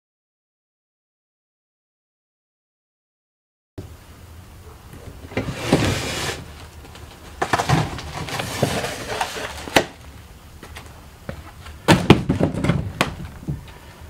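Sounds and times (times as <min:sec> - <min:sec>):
wooden panels scraping and rattling: 0:05.2 - 0:10.0, 0:11.4 - 0:13.8.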